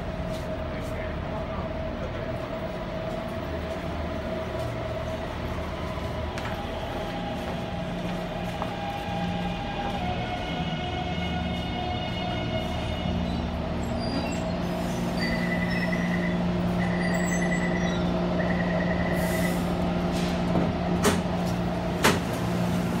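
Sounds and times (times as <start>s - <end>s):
train humming: 0.0s - 23.0s.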